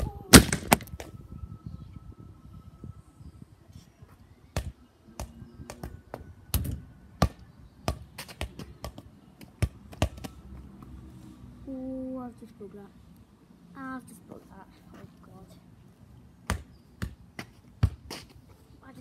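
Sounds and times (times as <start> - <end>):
football bouncing on concrete: 4.6 - 10.4, 16.5 - 18.3.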